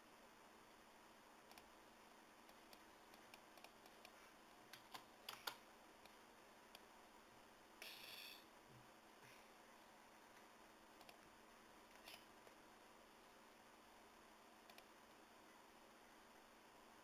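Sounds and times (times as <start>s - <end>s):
keyboard and mouse clicking: 1.5s - 1.7s, 2.5s - 5.6s, 11.0s - 11.2s, 14.6s - 14.9s.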